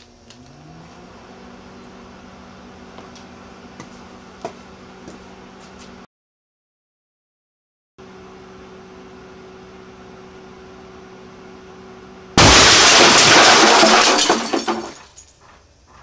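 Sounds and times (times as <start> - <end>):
microwave oven humming: 0.0 - 6.1, 8.0 - 12.7
falling debris clatters: 12.4 - 15.3.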